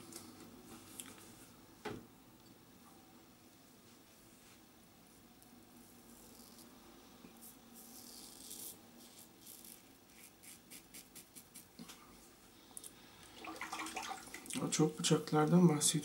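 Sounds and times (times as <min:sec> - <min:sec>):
razor scraping stubble: 0:07.4 - 0:11.7.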